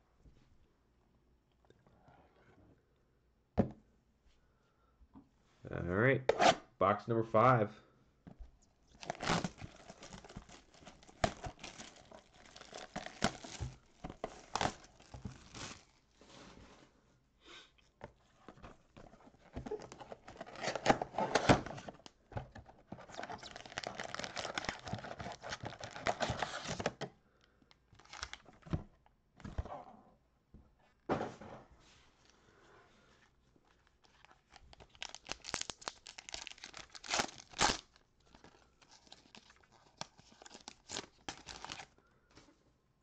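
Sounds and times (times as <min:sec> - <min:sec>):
plastic shrink-wrap crinkling: 0:08.9 - 0:16.2, 0:22.9 - 0:26.8, 0:33.8 - 0:41.9.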